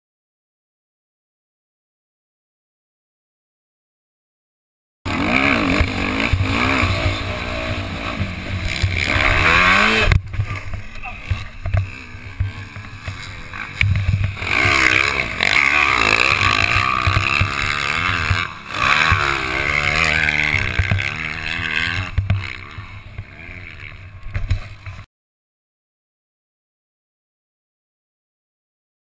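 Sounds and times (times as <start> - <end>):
dirt bike engine revving: 5.1 - 25.1.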